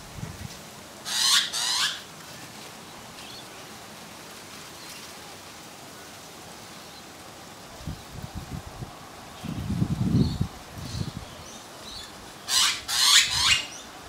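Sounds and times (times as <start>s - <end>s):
magpie harsh calls: 1.0s - 2.1s, 12.5s - 13.8s.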